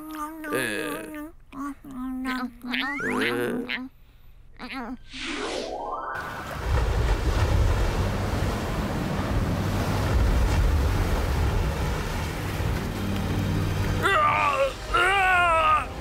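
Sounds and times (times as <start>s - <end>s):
short rising tone: 5.1s - 6.6s
wind blowing: 5.1s - 14.0s
waves surging: 5.4s - 16.0s.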